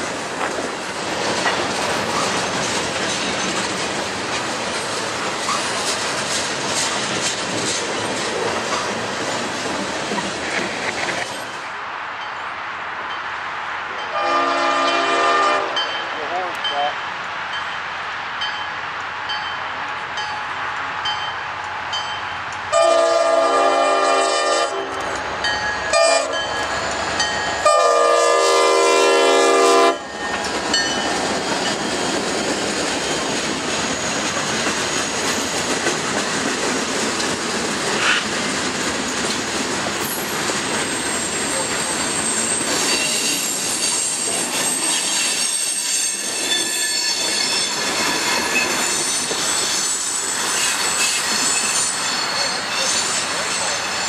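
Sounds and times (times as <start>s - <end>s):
wheels clacking over rail joints: 0.0s - 11.6s, 30.0s - 54.0s
freight train wheels rumbling: 0.0s - 54.0s
locomotive air horn blasts: 14.1s - 15.8s, 22.7s - 24.9s, 25.9s - 26.4s, 27.6s - 30.0s
high wheel squeal: 40.0s - 54.0s.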